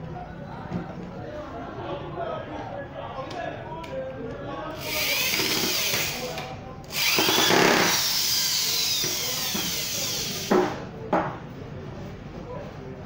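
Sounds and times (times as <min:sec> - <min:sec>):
electric drill boring into wood: 0:04.8 - 0:10.5.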